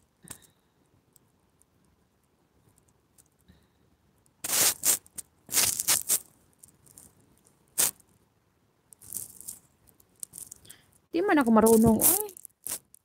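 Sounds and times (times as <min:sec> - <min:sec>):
rubbing scrapes on phone microphone: 0:04.4 - 0:06.2.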